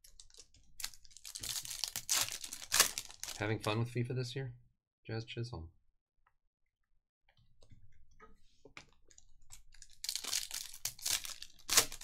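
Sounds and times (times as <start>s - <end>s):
foil wrapper crinkling and tearing: 0.0s - 3.5s, 9.6s - 12.0s.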